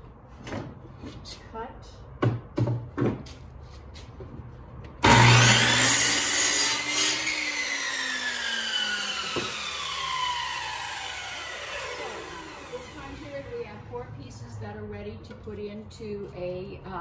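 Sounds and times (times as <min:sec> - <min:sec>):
miter saw cutting wood: 0:05.0 - 0:13.6.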